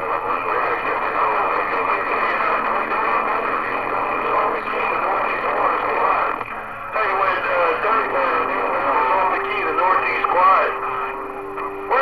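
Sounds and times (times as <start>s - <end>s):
radio static rush: 0.0s - 12.0s.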